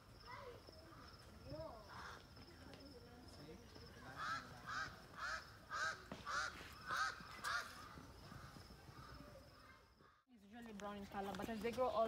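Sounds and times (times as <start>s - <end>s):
bird calling: 4.0s - 10.2s.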